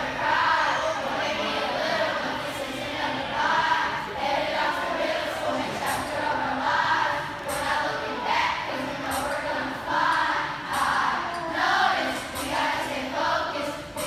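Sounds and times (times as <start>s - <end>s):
children singing and rapping: 0.0s - 14.0s.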